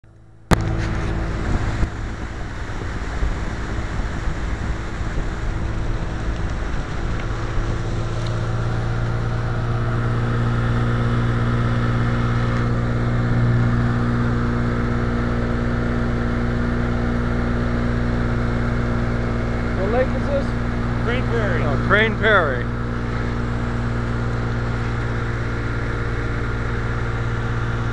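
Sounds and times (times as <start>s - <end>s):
outboard motor running: 0.0s - 27.9s
wind on microphone: 0.5s - 10.0s
water rushing past hull: 0.5s - 27.9s.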